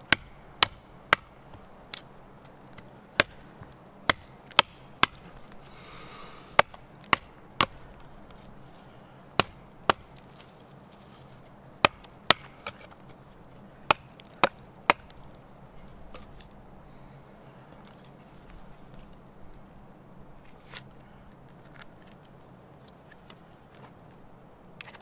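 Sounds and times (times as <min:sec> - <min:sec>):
chopping strikes on wood: 0:00.1 - 0:01.4, 0:03.2 - 0:03.4, 0:04.1 - 0:05.2, 0:06.6 - 0:07.8, 0:09.4 - 0:10.2, 0:11.8 - 0:12.9, 0:13.9 - 0:15.2.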